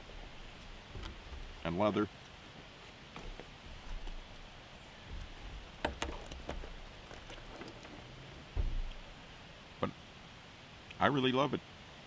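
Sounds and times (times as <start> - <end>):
bag rustling: 0.0 - 9.1
bag bumping on wooden table: 3.2 - 9.1
metal buckles clicking: 3.2 - 9.1.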